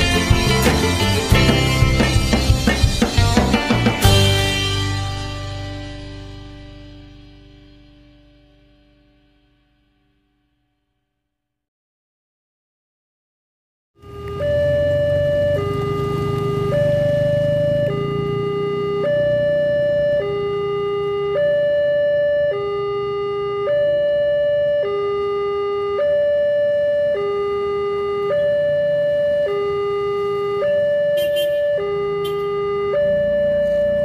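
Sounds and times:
two-tone level crossing alarm: 14.0s - 34.0s.

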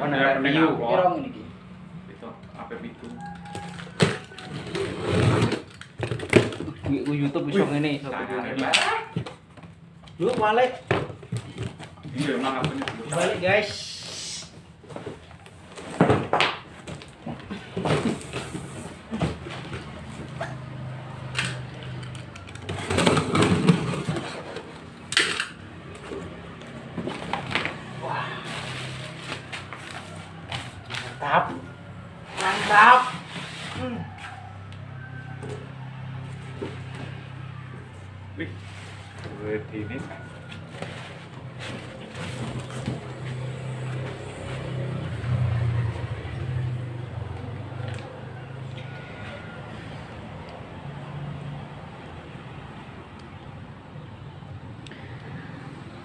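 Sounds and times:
cardboard box rustling and scraping: 4.0s - 6.6s, 40.2s - 44.7s.

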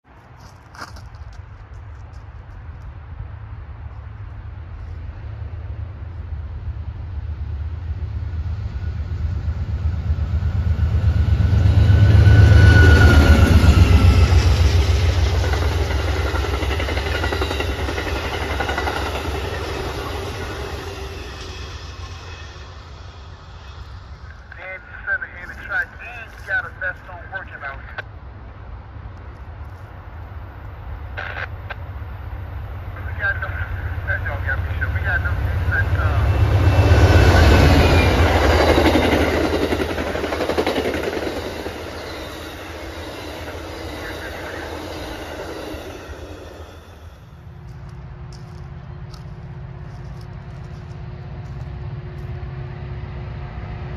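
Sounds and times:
train rumbling past: 0.0s - 53.9s
rhythmic rail clatter: 6.6s - 28.0s, 31.2s - 53.9s.

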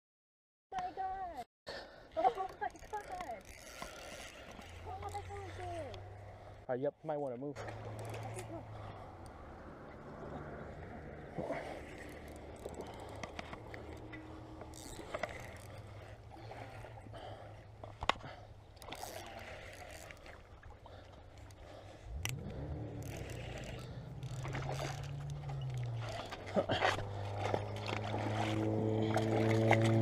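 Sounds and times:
fishing reel cranking: 2.2s - 6.0s, 7.8s - 8.6s, 11.8s - 17.0s, 18.8s - 20.5s, 21.4s - 26.5s
low motor drone: 7.6s - 17.9s, 21.3s - 30.0s.

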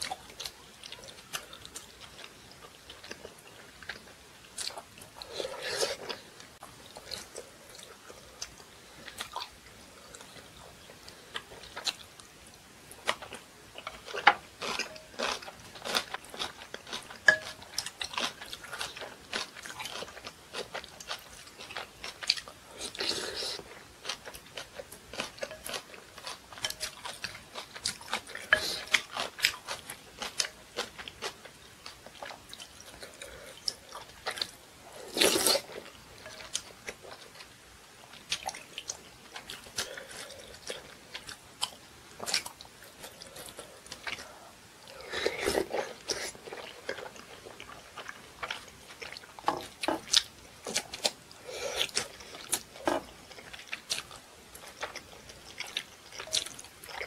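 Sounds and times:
wet chewing and mouth clicks: 0.0s - 57.0s
spoon clinking on glass bowl: 17.3s - 17.6s.

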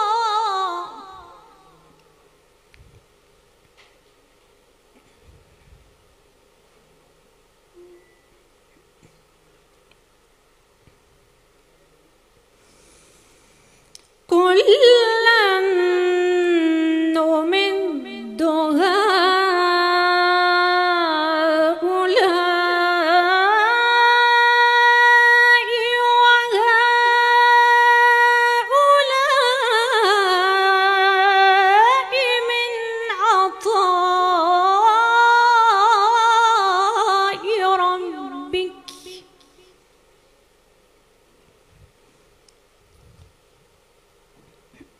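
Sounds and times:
woman chanting recitation: 14.3s - 39.8s.

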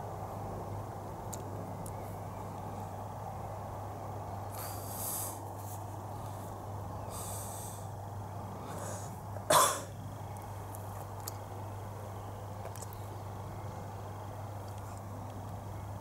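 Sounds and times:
person coughing: 9.5s - 9.9s.

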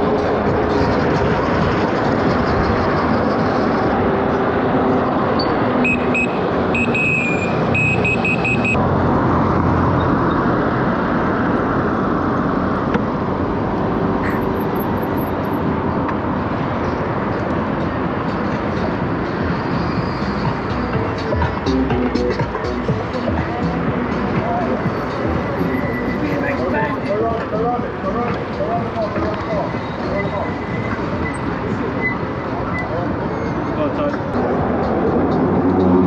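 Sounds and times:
road noise: 0.0s - 36.0s
high electronic beeps: 5.4s - 8.8s.

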